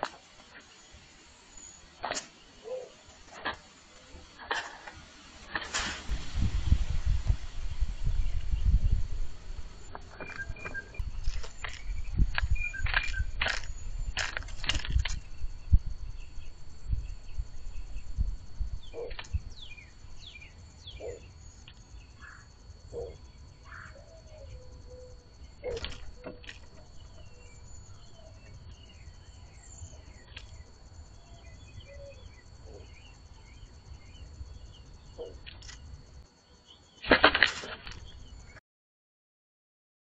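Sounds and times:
small birds chirping: 0:07.7 - 0:18.2, 0:18.8 - 0:37.1.

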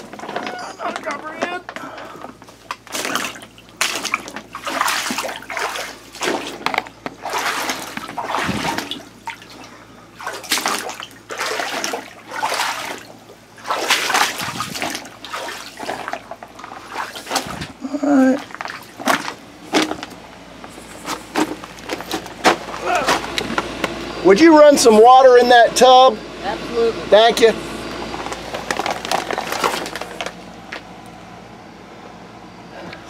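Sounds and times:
shallow water sloshing: 0:02.3 - 0:17.8, 0:18.4 - 0:23.2
plastic sheeting crinkling: 0:28.2 - 0:30.4.

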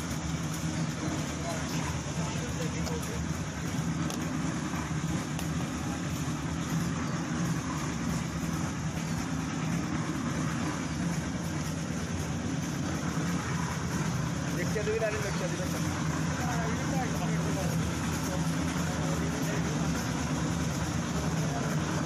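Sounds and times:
engine idling: 0:00.0 - 0:22.0.

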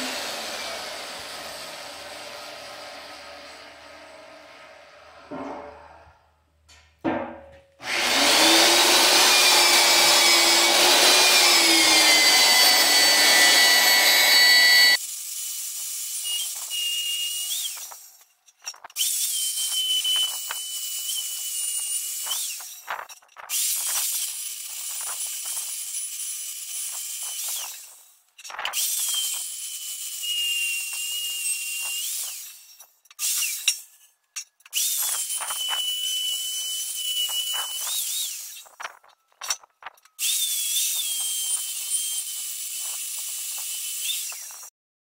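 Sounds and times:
drill press whining through steel: 0:00.0 - 0:06.0, 0:07.8 - 0:15.0, 0:40.2 - 0:44.7
drill click: 0:07.8 - 0:15.0.

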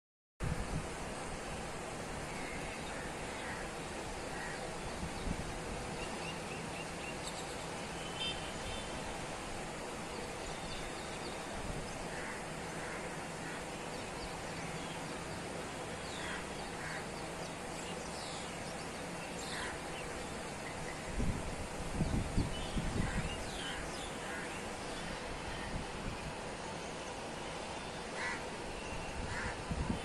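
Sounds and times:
distant city hiss: 0:00.4 - 0:30.0
faint bird calls: 0:28.1 - 0:30.0.

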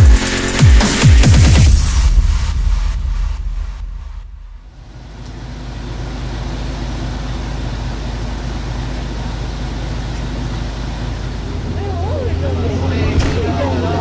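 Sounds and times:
electronic intro music: 0:00.0 - 0:04.9
road noise: 0:00.0 - 0:14.0
vehicle engine humming: 0:00.0 - 0:14.0.

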